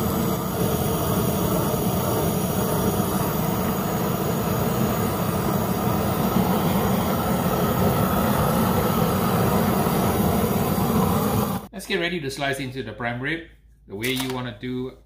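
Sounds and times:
torch flame blasting: 0.0 - 11.7.

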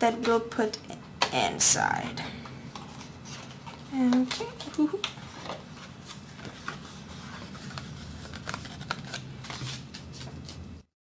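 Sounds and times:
steady low hum: 0.0 - 10.9
paper rustling and scraping: 5.2 - 10.8.

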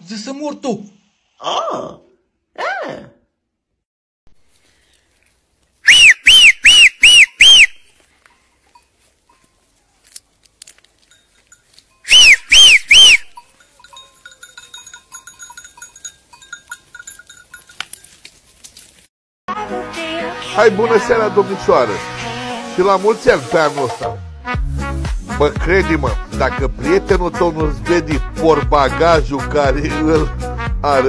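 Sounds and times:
loud finger whistling: 5.8 - 7.9, 12.1 - 13.4.

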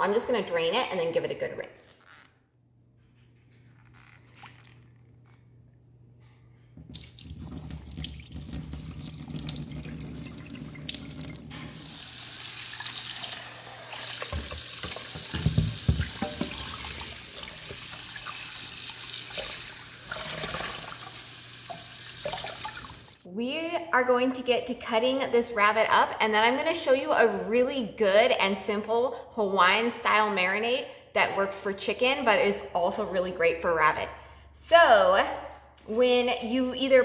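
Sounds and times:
faucet running into steel sink: 6.9 - 23.2
water draining from bowl: 6.9 - 23.2.

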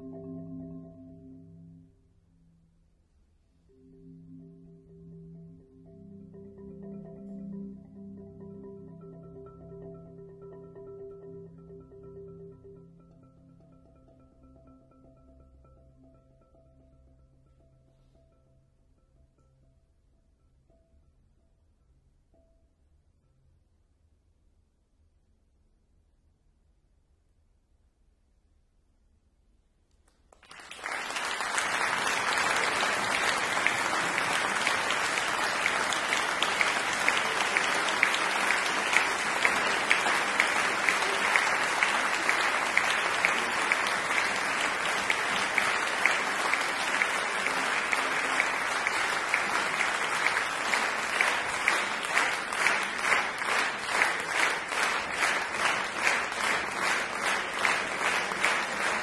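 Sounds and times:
rhythmic clapping in unison: 30.0 - 59.0
audience applause: 30.3 - 59.0.

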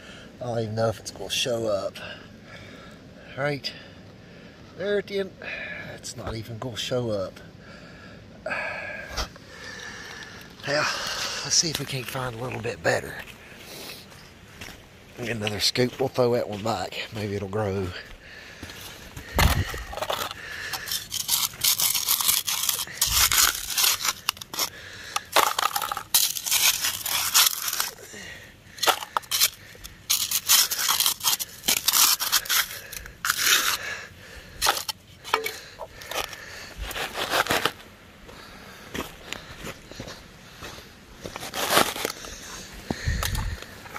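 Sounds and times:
hand scoop digging dirt: 19.2 - 33.9, 34.5 - 37.8, 41.2 - 43.9.

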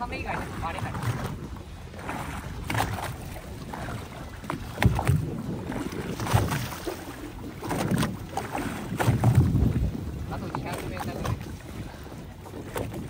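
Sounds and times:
water noise: 0.0 - 13.0
wind: 0.0 - 13.0
low thumps and knocks: 4.4 - 7.0, 7.6 - 11.6.

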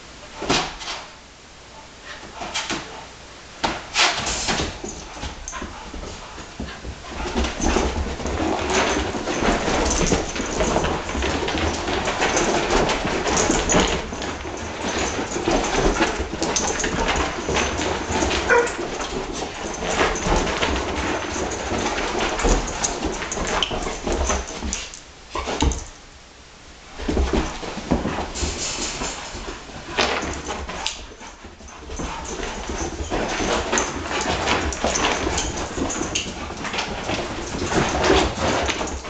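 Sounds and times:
dogs whining and yipping: 14.9 - 20.5.

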